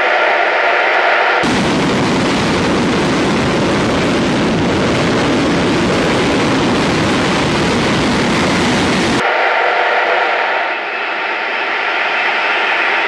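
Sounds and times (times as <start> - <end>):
jet engine exhaust roar: 0.0 - 13.0.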